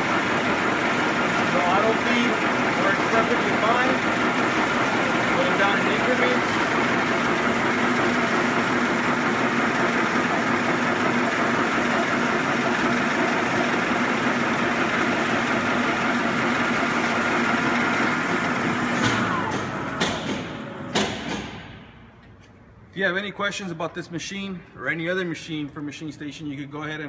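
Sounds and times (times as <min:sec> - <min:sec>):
surface grinder humming: 0:00.0 - 0:20.8
sharp knocks: 0:19.0 - 0:22.0.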